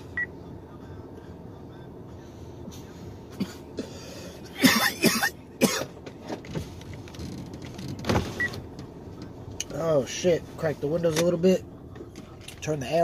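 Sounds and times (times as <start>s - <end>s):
man coughing hard: 3.3s - 6.0s.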